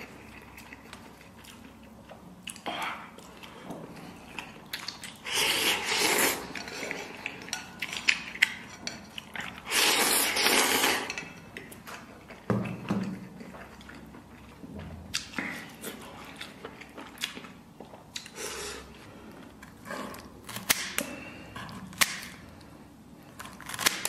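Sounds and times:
wet chewing: 0.0 - 18.7
person slurping noodles: 5.2 - 6.6, 9.6 - 11.1.

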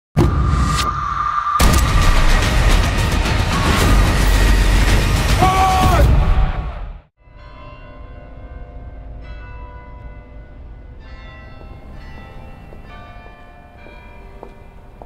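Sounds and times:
bells ringing: 7.2 - 15.0.

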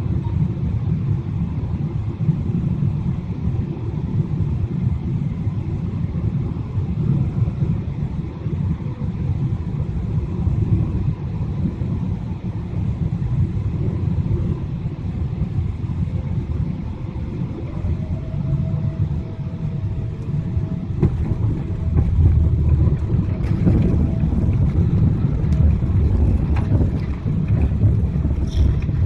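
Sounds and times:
faint steady whine: 0.0 - 29.0
jet engines rumbling: 0.0 - 29.0
rushing air: 12.7 - 29.0.

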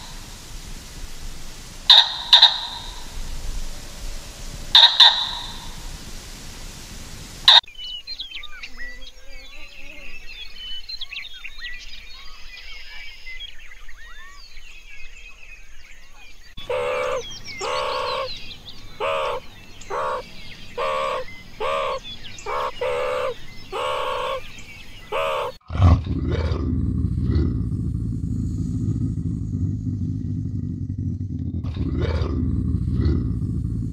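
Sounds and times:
small birds chirping: 0.0 - 4.1, 4.7 - 25.6
low rumbling noise: 0.0 - 7.6, 25.1 - 33.9
short pitched meerkat calls: 1.9 - 3.0, 4.8 - 5.6, 16.6 - 18.3, 19.0 - 20.2, 20.8 - 24.4, 25.1 - 25.6.

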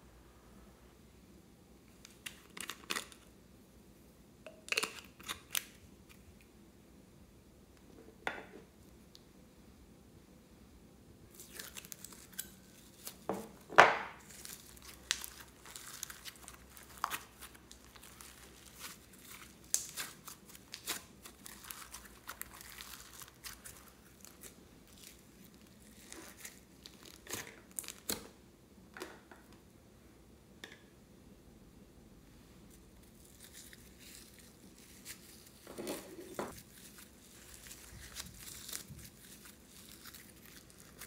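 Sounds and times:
slime squeezing with sticky crackles: 14.2 - 28.2, 36.5 - 41.0
slime tearing: 14.2 - 28.2, 36.5 - 41.0.

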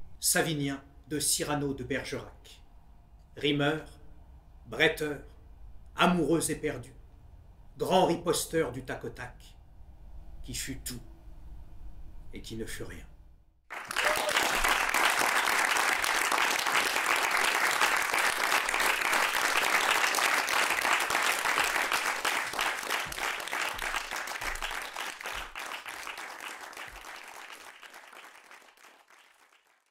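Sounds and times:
audience applauding: 13.7 - 29.9.

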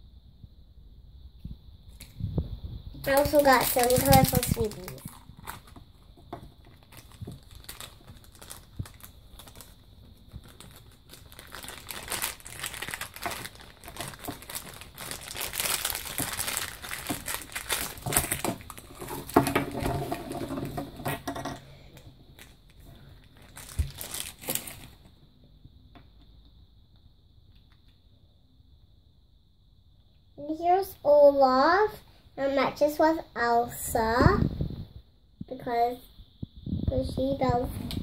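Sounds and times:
plastic wrapper crinkling: 3.0 - 21.6, 22.3 - 25.1.

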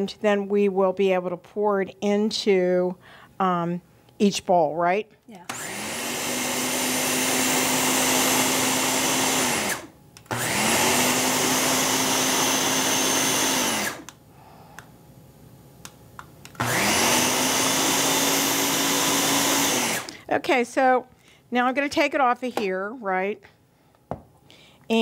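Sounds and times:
blender motor whining: 5.4 - 14.2, 16.6 - 20.2.

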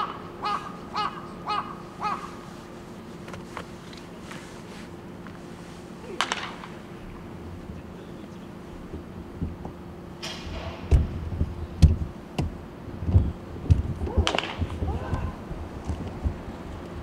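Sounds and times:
faint steady hum: 0.0 - 17.0
baseball bats striking balls: 6.0 - 7.0, 13.7 - 15.3.

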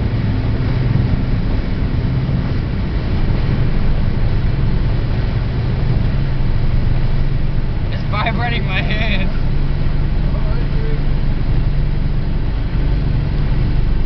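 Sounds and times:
car engine running hard: 0.0 - 14.0
road noise: 0.0 - 14.0
wind noise: 0.0 - 14.0.

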